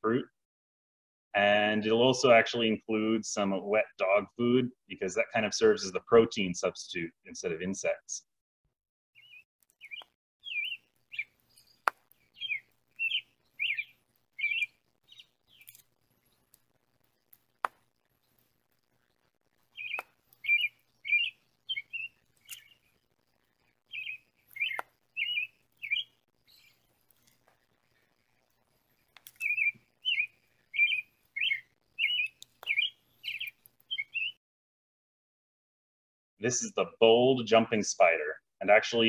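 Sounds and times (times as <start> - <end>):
songbird chirping: 9.2 - 34.4
sharp clicks: 29.1 - 29.8.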